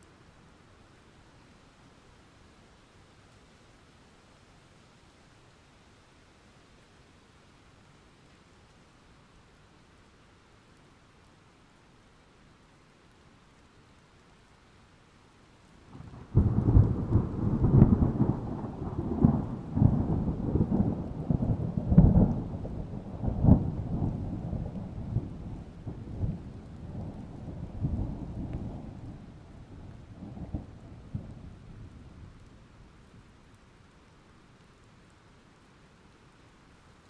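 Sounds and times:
low rumble with crackling: 10.8s - 37.0s.

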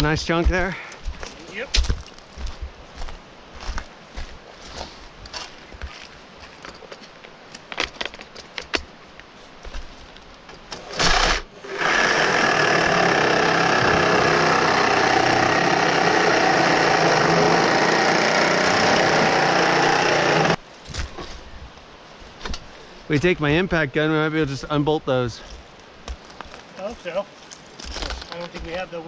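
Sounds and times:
reciprocating saw cutting metal: 10.8s - 20.6s.

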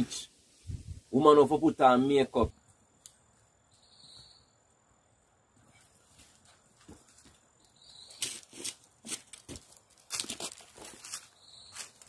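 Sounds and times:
footsteps crunching on dry leaves: 8.0s - 12.0s.

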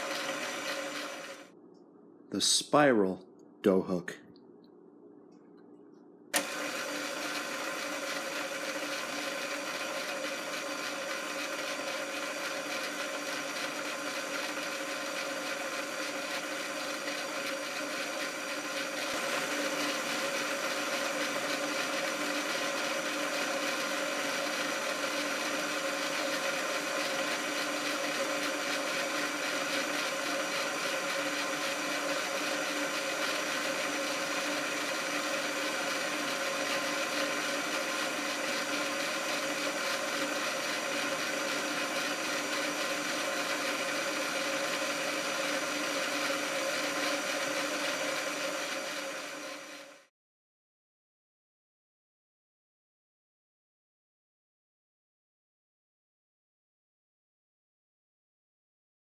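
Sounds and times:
stand mixer motor whining: 0.0s - 1.5s, 6.4s - 50.1s.

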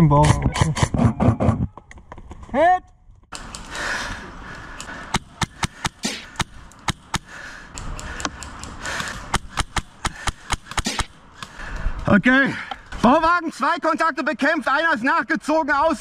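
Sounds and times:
airsoft rifle shots: 9.2s - 11.2s.

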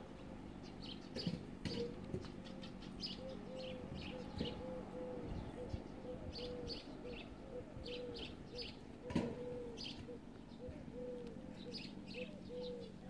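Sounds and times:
birds calling low notes: 0.0s - 13.0s.

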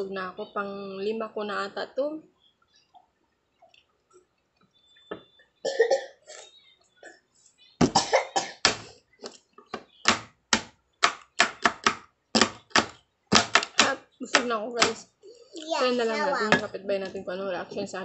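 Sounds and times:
woman coughing sharply: 5.7s - 6.4s, 7.8s - 8.6s.

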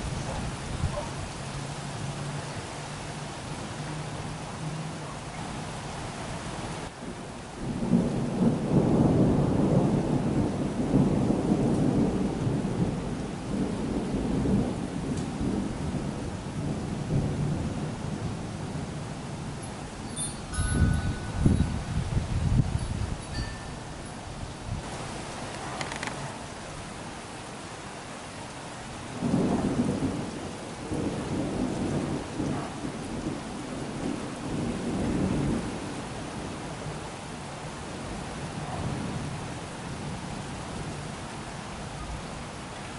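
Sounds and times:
rain falling: 0.0s - 42.9s
rolling thunder: 7.6s - 24.9s, 29.1s - 37.0s.

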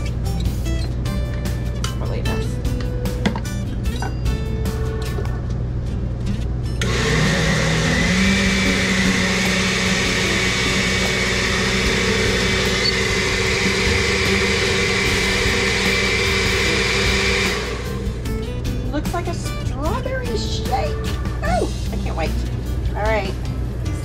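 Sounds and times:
vehicle engine: 6.8s - 18.6s.

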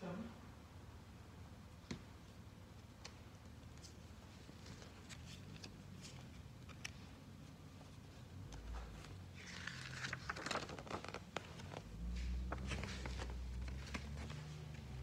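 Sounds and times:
plastic packaging crinkling: 9.4s - 11.8s.

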